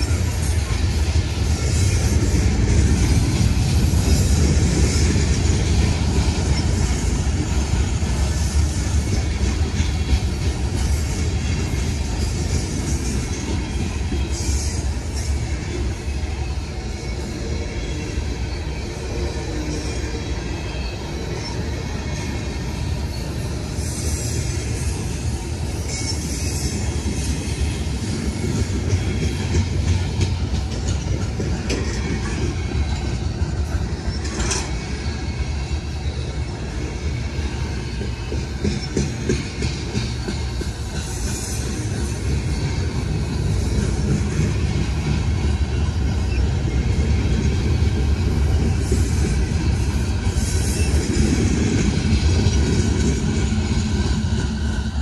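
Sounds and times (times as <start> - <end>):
low rumble of train wheels: 0.0 - 55.0
wheels clicking over rail joints: 28.0 - 35.0
hiss: 38.6 - 45.2, 48.7 - 55.0.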